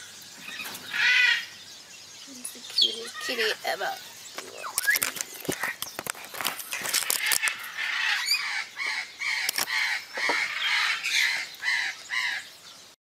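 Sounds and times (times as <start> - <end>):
camera rustling in straw: 4.4 - 7.8.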